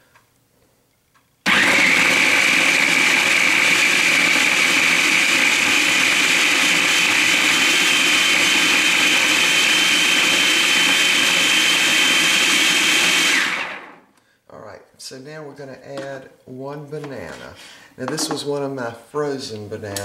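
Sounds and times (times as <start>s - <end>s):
food processor motor whine: 1.5s - 14.0s.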